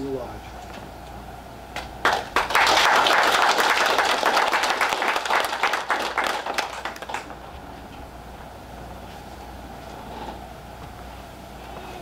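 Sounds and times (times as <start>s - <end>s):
audience applauding: 2.0s - 7.4s.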